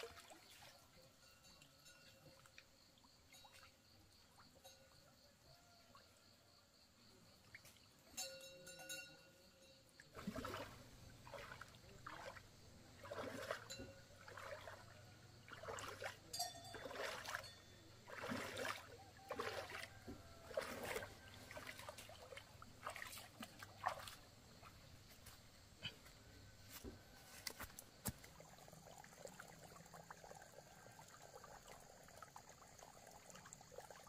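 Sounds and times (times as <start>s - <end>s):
water splashing: 0.0s - 1.1s, 10.1s - 25.0s, 27.2s - 34.0s.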